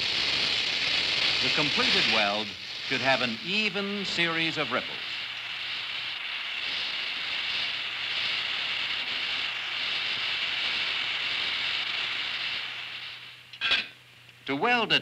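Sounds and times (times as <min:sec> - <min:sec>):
welding torch flame hissing: 0:00.0 - 0:14.8.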